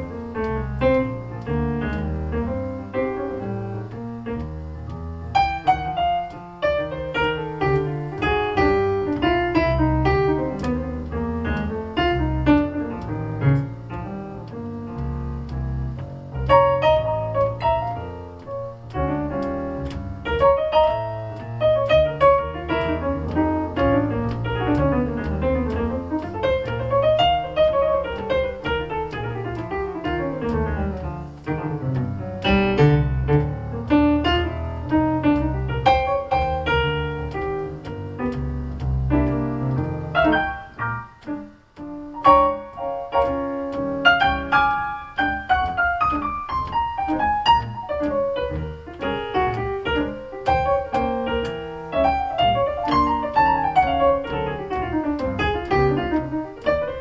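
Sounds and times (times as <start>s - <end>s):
piano melody and arpeggios: 0.0s - 57.0s.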